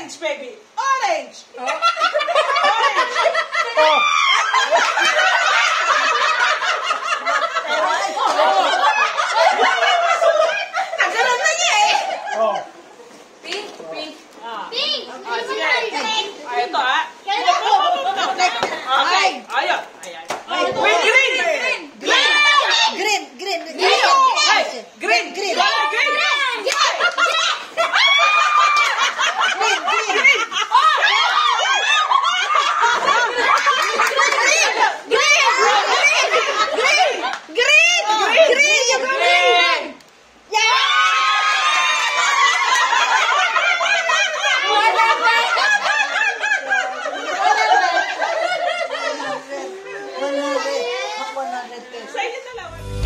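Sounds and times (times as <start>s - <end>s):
group of people laughing: 1.6s - 12.8s, 26.6s - 37.4s, 42.1s - 50.4s.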